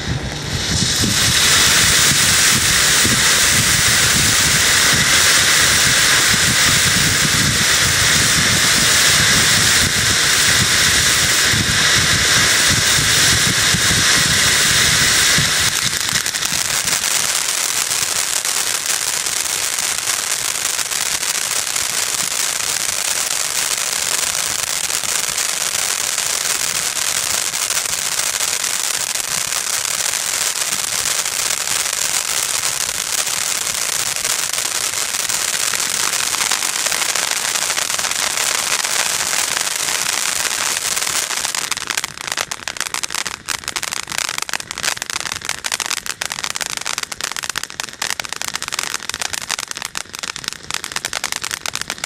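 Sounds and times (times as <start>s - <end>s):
low rumble: 0.0s - 17.1s
firework crackling: 0.0s - 52.0s
firework fountain hissing: 0.0s - 52.0s.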